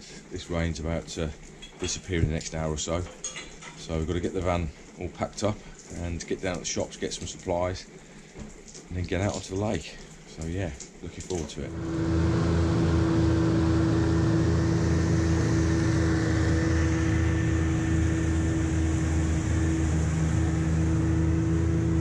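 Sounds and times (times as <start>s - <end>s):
outboard motor running: 11.7s - 22.0s.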